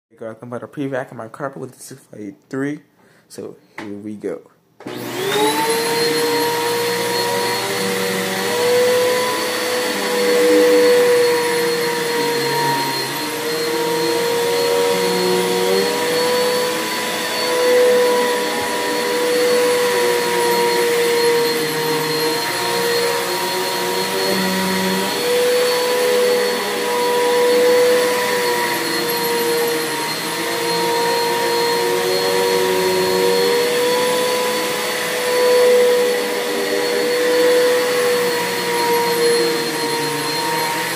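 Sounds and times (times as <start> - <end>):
vacuum cleaner running on carpet: 4.8 - 40.9.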